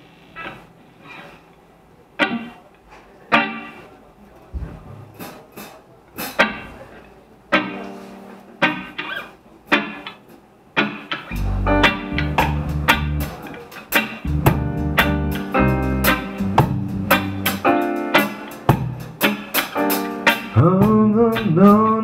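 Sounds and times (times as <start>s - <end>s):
rock band playing: 3.3s - 3.8s, 5.1s - 6.8s, 7.5s - 10.2s, 10.8s - 22.0s
electric guitar chords: 7.5s - 10.2s, 10.8s - 22.0s
bass guitar: 11.3s - 22.0s.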